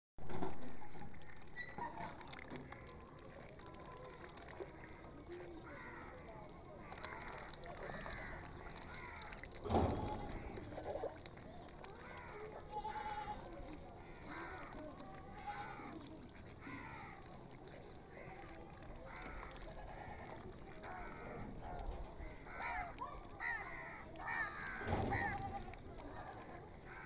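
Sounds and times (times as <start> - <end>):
duck bills splashing in water: 0.2 - 27.0.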